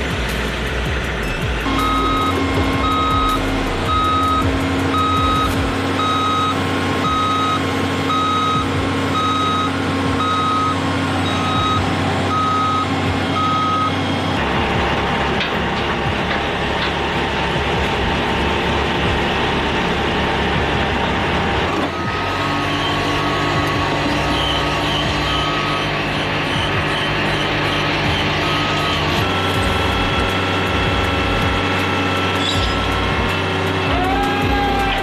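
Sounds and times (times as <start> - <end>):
truck engine running: 0.0 - 35.0
truck backup alarm beeping: 1.1 - 33.9.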